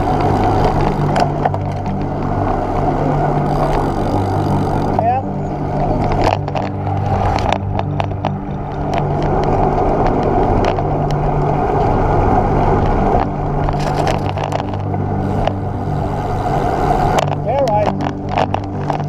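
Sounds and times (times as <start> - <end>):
bicycle tyres rolling on tarmac: 0.0 - 19.0
wind rushing over camera: 5.7 - 19.0
clicks and knocks from bumps: 6.0 - 11.2, 13.2 - 15.6, 17.1 - 19.0.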